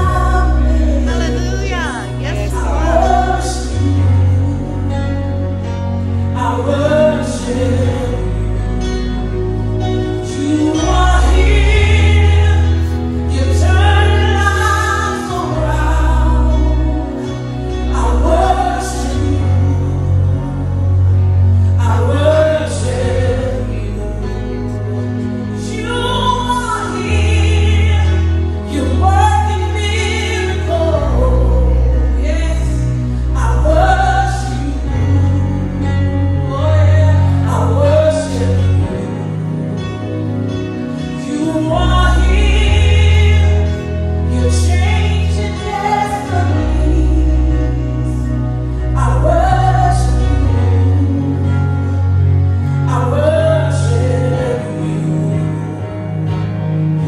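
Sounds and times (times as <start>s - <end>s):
woman singing lead: 0.0s - 4.8s
sustained bass notes: 0.0s - 57.0s.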